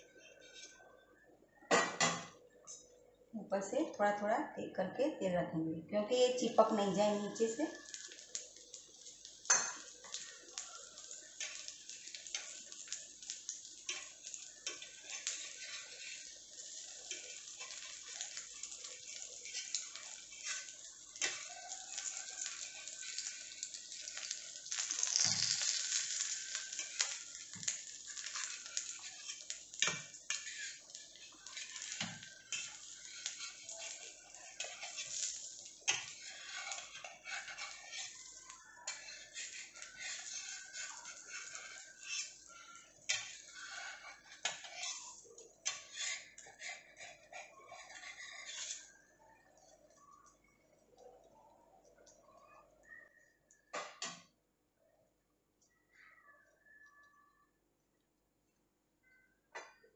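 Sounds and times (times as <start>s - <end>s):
metal spatula scraping pan: 0.2s - 0.8s, 9.4s - 48.9s
omelette sizzling in oil: 6.1s - 50.4s.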